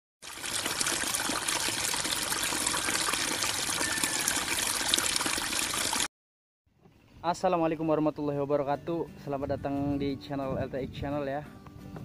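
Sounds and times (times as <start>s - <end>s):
crackling water trickle: 0.2s - 6.1s.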